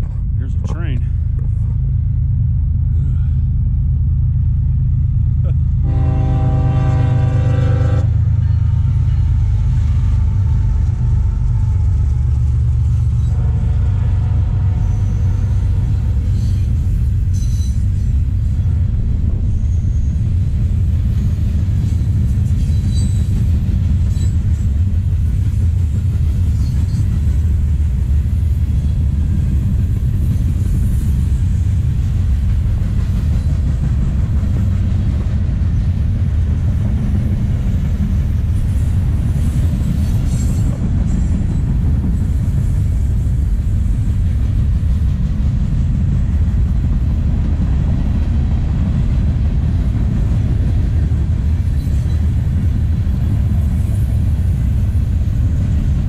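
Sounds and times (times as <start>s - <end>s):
freight train rumbling past: 0.0s - 56.0s
train horn: 5.8s - 12.0s, 13.2s - 15.7s.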